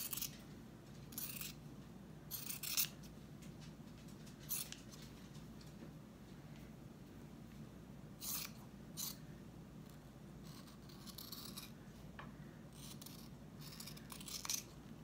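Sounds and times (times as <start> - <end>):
scissors snipping through felt: 12.8 - 14.7.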